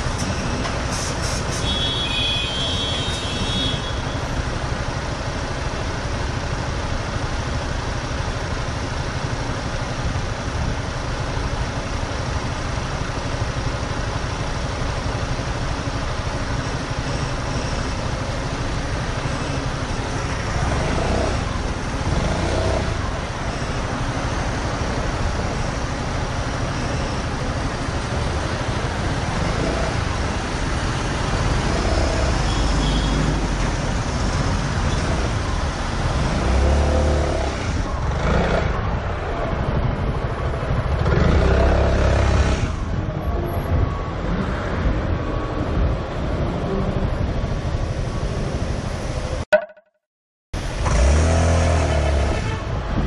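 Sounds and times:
road traffic noise: 0.0 - 49.8, 50.6 - 53.0.

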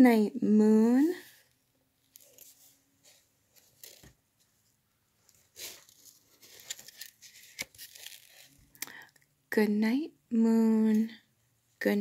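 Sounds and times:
book pages rustling: 1.2 - 8.8.

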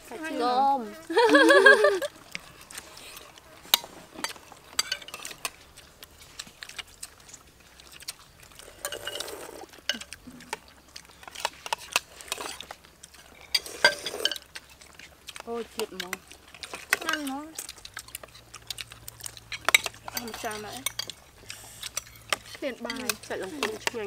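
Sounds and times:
spoons clinking on plates: 3.7 - 5.6, 8.8 - 10.1, 13.4 - 14.5, 19.5 - 21.2, 21.9 - 24.0.

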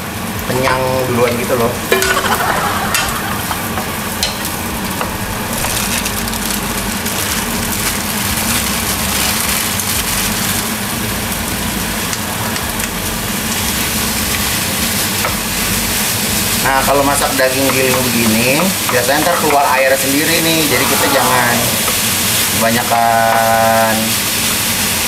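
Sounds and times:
steady low hum: 0.0 - 17.2
meat and onions sizzling in a pan: 0.0 - 25.0.

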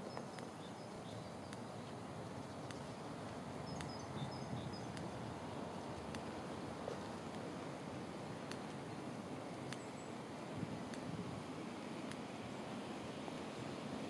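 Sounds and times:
faint bird chirps: 0.0 - 5.2.

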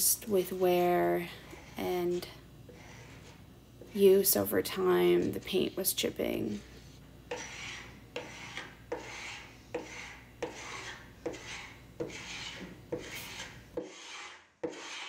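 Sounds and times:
scraper rasping paint off wood: 2.7 - 3.4, 6.6 - 15.0.

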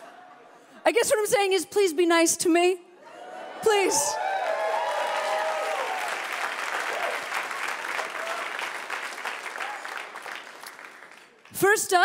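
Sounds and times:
audience applauding: 4.1 - 11.6.

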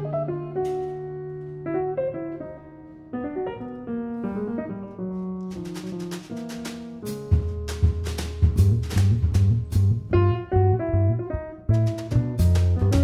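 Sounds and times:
jazz piano: 0.0 - 13.0.

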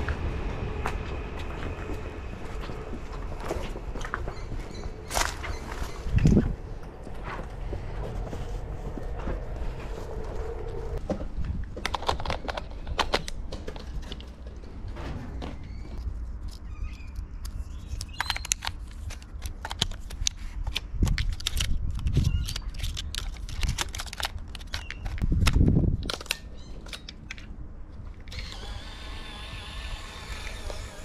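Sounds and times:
film camera clicks and rattles: 18.0 - 27.4
steady whirring: 28.3 - 31.0.

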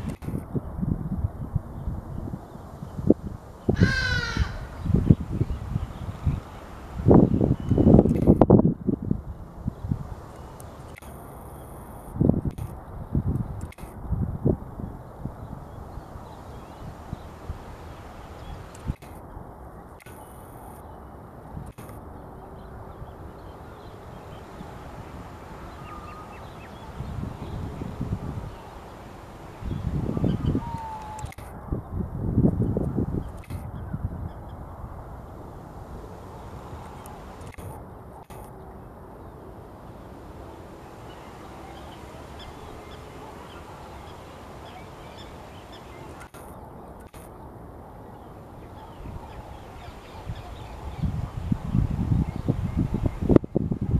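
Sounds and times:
outdoor background hiss: 0.0 - 53.9
wind rumbling on microphone: 0.0 - 53.9
faint bird chirps: 3.7 - 8.1, 22.2 - 31.4.

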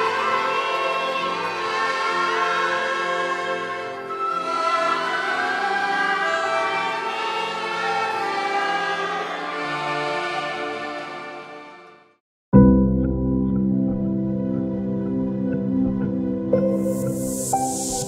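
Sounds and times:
choir singing with orchestra: 0.0 - 11.9, 16.5 - 18.0.

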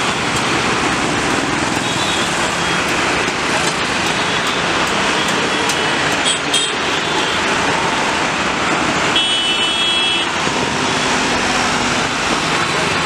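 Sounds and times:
road traffic roar: 0.0 - 13.0
high-pitched vehicle horn: 9.2 - 10.3.

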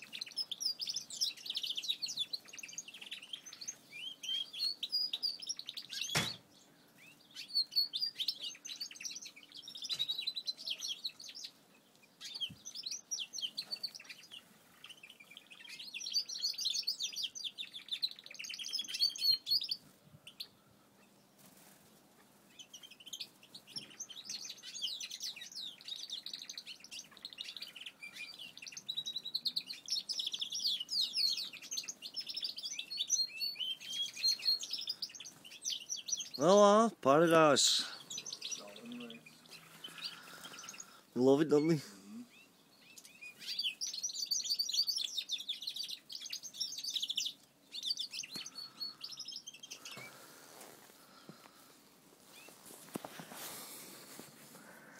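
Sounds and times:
finches chirping and twittering: 0.0 - 51.7.

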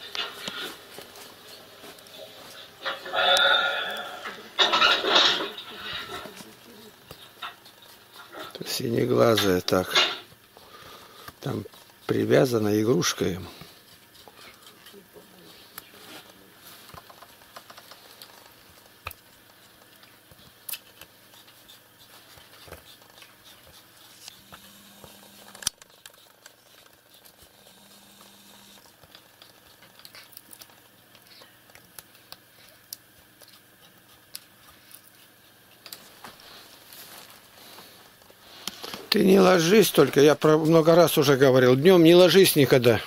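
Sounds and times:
cat scratching at a toy: 11.3 - 31.4.

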